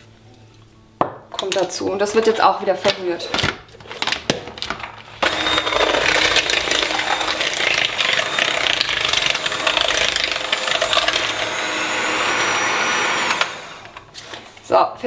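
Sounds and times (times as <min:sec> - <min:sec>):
electric mixer beating dough: 0:05.2 - 0:14.4.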